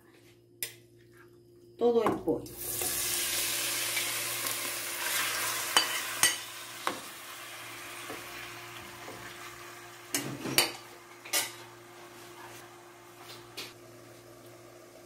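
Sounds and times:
chicken sizzling in hot oil: 2.5 - 11.9.

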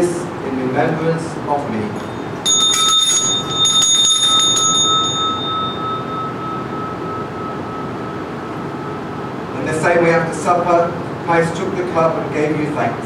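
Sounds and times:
bright bell jangling: 2.0 - 9.1.

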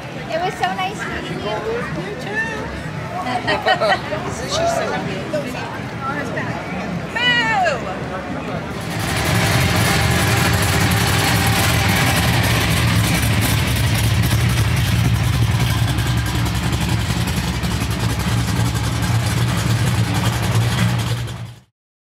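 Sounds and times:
car engine running: 8.6 - 21.7.

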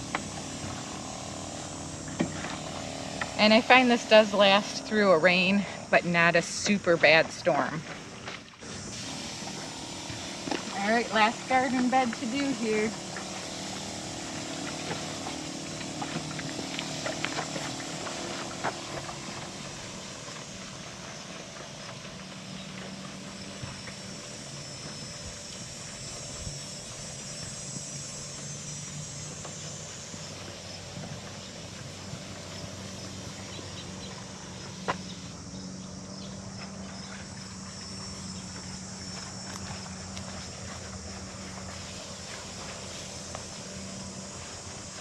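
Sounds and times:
sprayer pump motor humming: 0.0 - 45.0.

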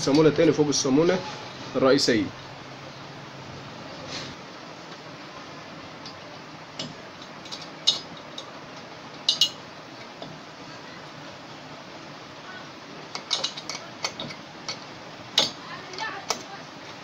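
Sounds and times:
spanner clicking against metal nut: 13.1 - 14.8.

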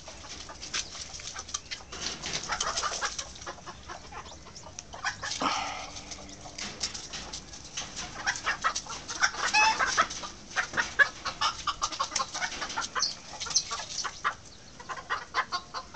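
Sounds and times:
chickens clucking: 0.0 - 15.9
scratching in dry leaves: 7.3 - 14.4.

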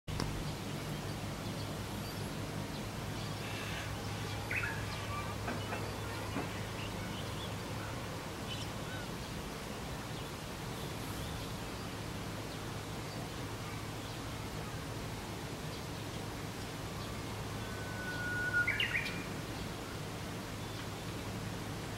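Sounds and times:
faint bird calls: 2.0 - 9.4, 16.8 - 20.0.

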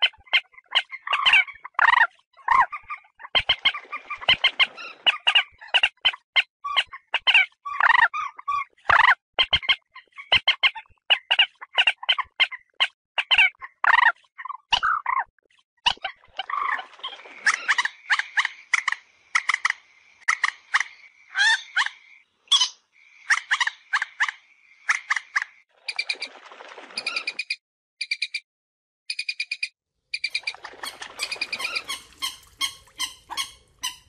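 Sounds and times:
moorhens clucking calls: 30.2 - 34.0.

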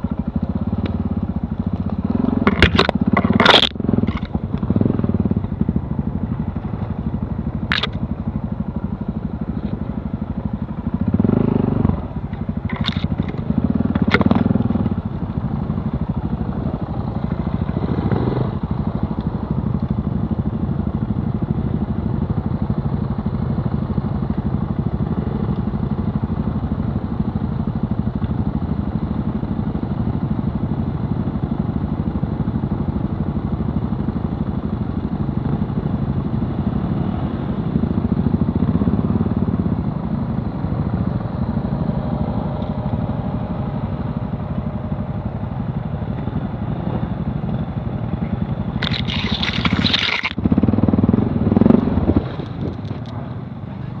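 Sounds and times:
motorcycle engine revving: 0.0 - 8.0, 10.2 - 19.1, 48.8 - 53.2
motorcycle engine idling: 0.0 - 48.8.

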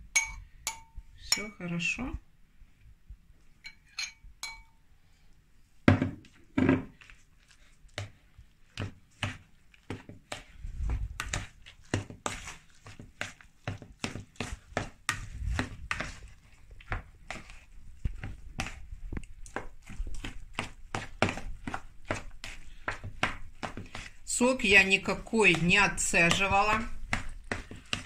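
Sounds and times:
ringing clink: 3.6 - 4.8
utensil stirring wet mixture: 6.2 - 28.0.

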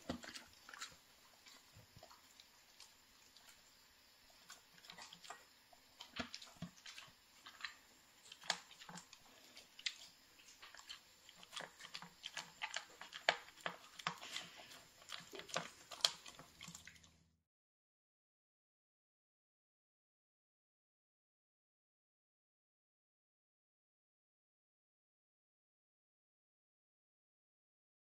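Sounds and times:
dog crunching food from metal bowl: 6.0 - 17.1.

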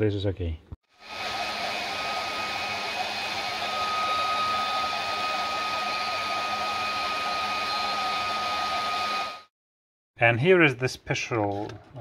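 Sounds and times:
heat gun fan whining: 1.0 - 9.4.

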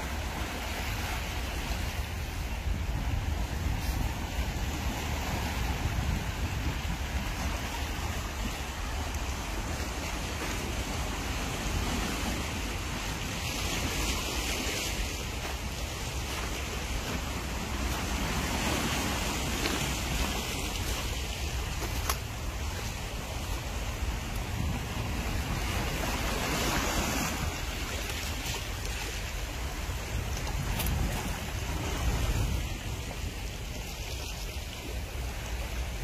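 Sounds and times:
waves washing over pebbles: 0.0 - 36.0
wind buffeting microphone: 0.0 - 36.0.

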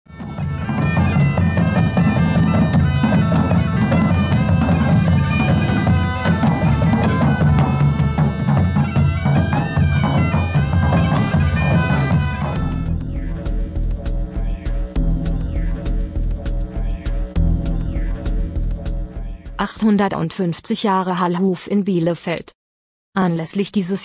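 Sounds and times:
bagpipes playing: 0.1 - 13.1
bass drum beats: 0.1 - 20.2.

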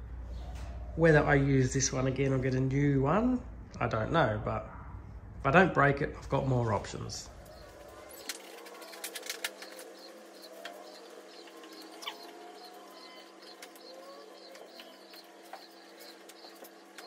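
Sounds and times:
steady low hum: 0.0 - 17.0
birds chirping: 6.4 - 17.0
lower bird calls: 7.3 - 17.0.

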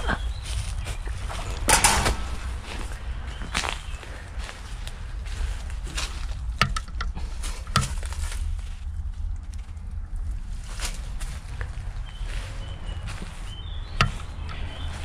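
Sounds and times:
steady low rumble: 0.0 - 15.0
sharp knocks and clicks: 1.6 - 2.6, 6.5 - 8.1, 14.0 - 14.7.

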